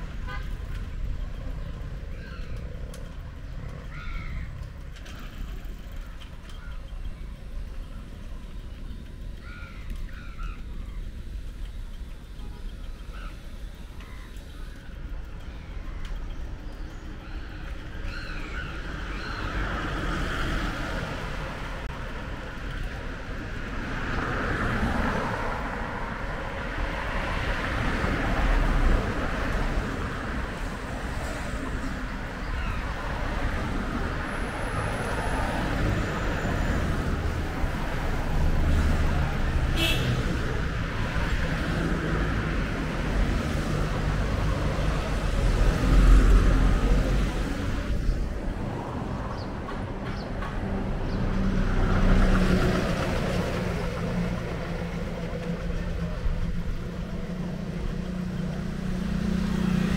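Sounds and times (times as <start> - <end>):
vehicle engines and tyre noise: 0.0 - 59.9
deep engine rumble: 42.4 - 59.9.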